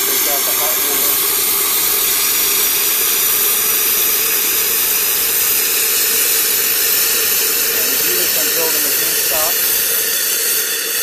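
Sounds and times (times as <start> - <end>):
steam and hot water hissing: 0.0 - 11.0.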